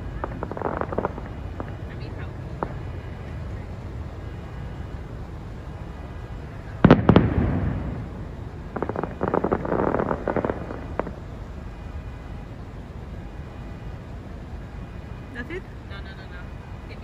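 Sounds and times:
firework crackle of small pops: 0.0 - 16.9
firework shell bursts: 6.8 - 11.3.

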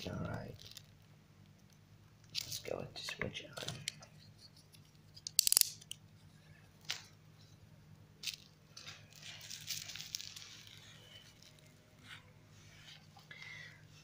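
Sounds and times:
faint low hum: 0.0 - 14.0
soft rustle: 8.2 - 14.0.

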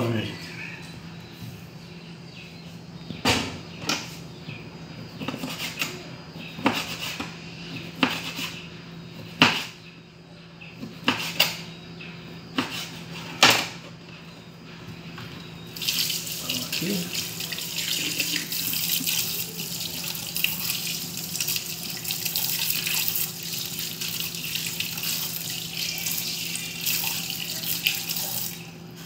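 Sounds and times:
knife chopping meat on a board: 5.2 - 8.5, 9.2 - 9.8, 10.8 - 11.6, 12.5 - 13.7.

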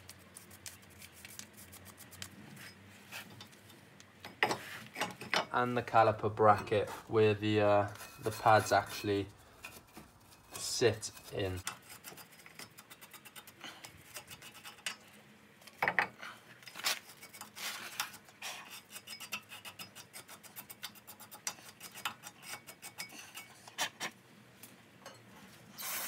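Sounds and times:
wire brush scrubbing metal: 7.8 - 15.0, 16.7 - 24.1.

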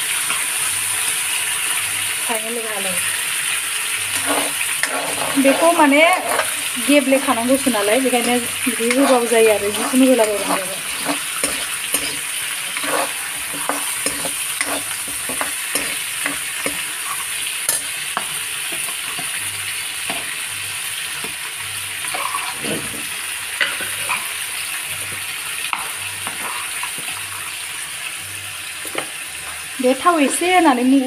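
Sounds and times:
fish frying in oil: 0.0 - 31.0
metal spatula scraping and tapping: 4.1 - 6.6, 8.1 - 19.4, 23.6 - 24.2, 25.7 - 27.2.

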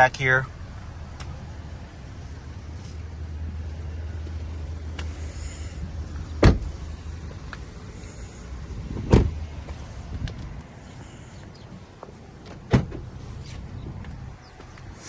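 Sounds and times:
car door slamming: 6.4 - 6.9, 9.0 - 9.5, 12.4 - 13.1.

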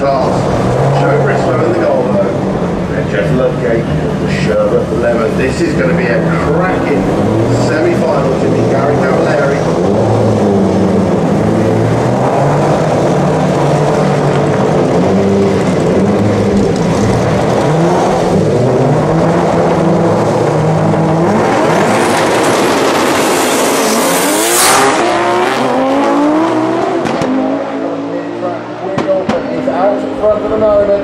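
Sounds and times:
car engines revving: 0.0 - 31.0
cars launching with rising engine: 0.0 - 31.0.

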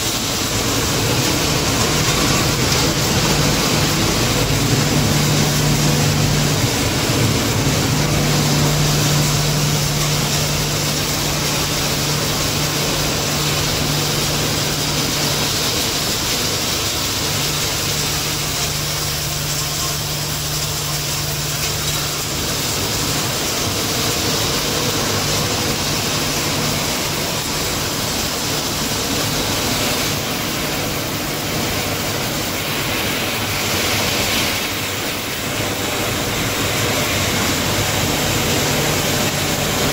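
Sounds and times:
low hum: 0.4 - 28.9.

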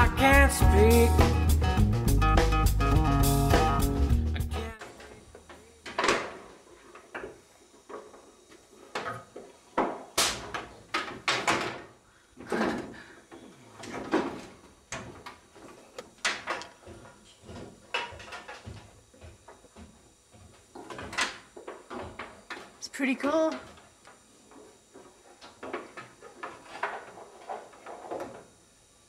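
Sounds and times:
wooden boards knocking: 9.8 - 11.9.

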